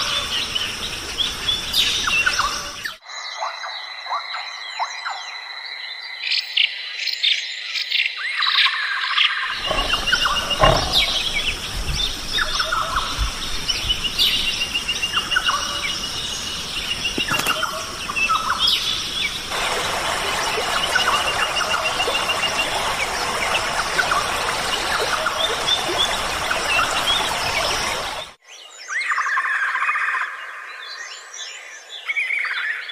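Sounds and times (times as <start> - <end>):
birds calling and chirping: 0.0 - 30.2
low thumps: 9.5 - 14.6
insect drone: 9.6 - 28.2.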